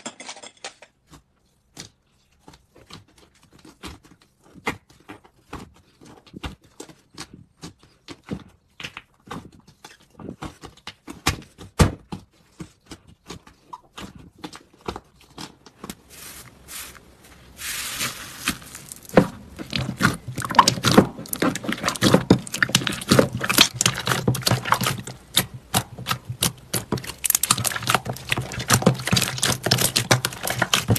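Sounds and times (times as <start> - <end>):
slime clicking and popping: 18.9 - 30.9.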